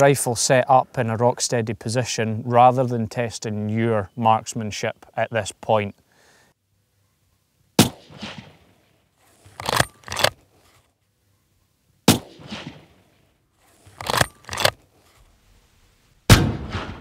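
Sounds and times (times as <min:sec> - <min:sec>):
rifle shots with echo: 0:07.8 - 0:08.8, 0:12.1 - 0:13.0, 0:16.3 - 0:17.0
rifle bolt clacks: 0:09.5 - 0:10.4, 0:14.0 - 0:14.8.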